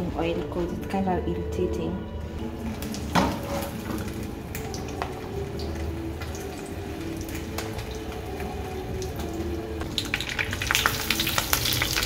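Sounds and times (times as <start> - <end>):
oil crackling and popping: 2.4 - 12.0
sausages sizzling in frying oil: 2.4 - 12.0.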